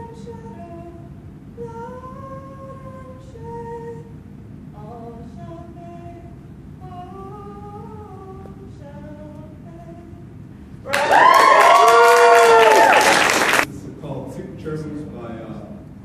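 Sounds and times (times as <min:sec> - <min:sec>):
woman singing a cappella: 0:00.0 - 0:10.3
audience applause and cheering: 0:10.8 - 0:13.7.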